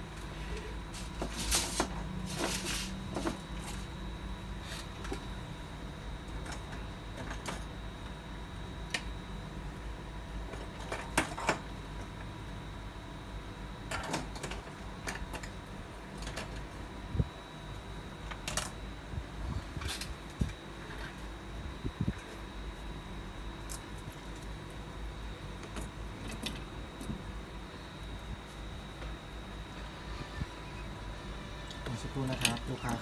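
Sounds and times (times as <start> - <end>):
steady low hum: 0.0 - 33.0
faint high whine: 16.3 - 33.0.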